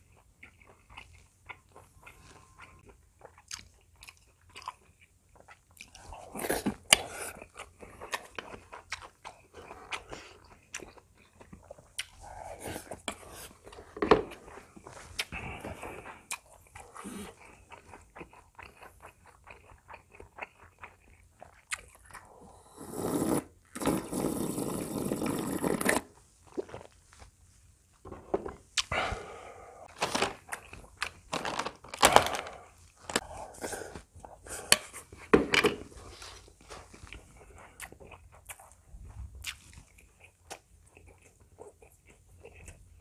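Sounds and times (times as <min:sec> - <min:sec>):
man chewing food: 0:00.0 - 0:43.0.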